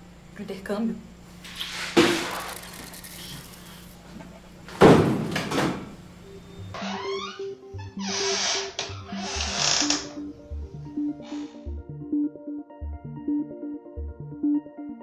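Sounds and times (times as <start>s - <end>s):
soft music with repeating note: 6.1s - 15.0s.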